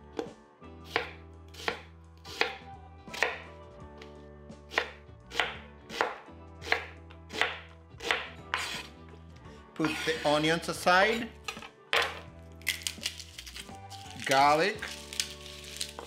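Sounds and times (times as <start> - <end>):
knife chopping onion on board: 0.2 - 3.5, 4.7 - 8.9.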